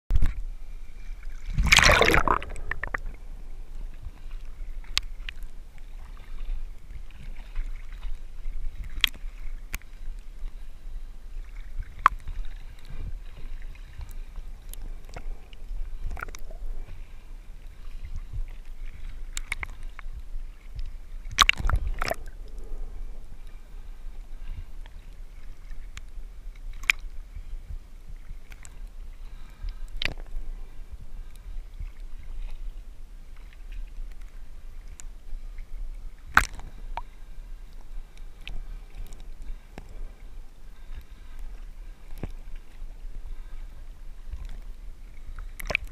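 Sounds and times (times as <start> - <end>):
muffled water sloshing and gurgling: 0.1 - 45.9
steady low rumble: 0.3 - 45.9
loud splash: 1.4 - 3.3.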